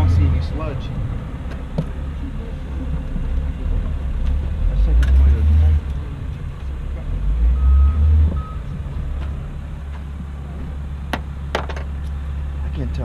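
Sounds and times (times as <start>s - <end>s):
steady low rumble: 0.0s - 13.0s
vehicle reversing alarm beeps: 7.4s - 8.7s.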